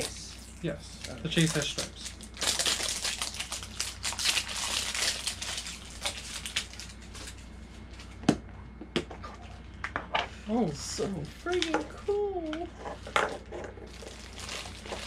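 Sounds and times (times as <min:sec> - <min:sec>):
plastic wrapping crinkling: 0:00.0 - 0:08.1, 0:13.9 - 0:15.0.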